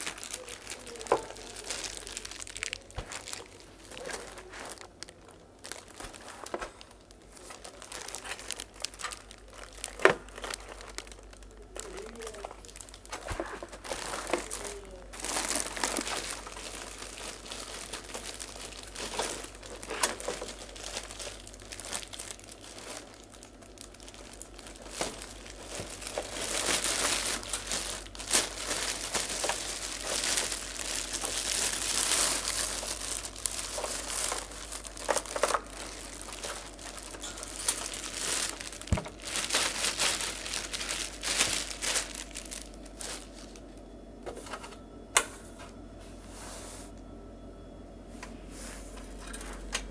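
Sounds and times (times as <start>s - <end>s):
plastic wrapping crinkling: 0.0s - 43.8s.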